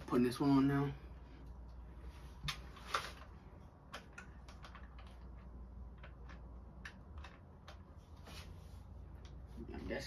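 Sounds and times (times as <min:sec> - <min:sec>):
small clicks and taps: 0:03.9 - 0:07.9.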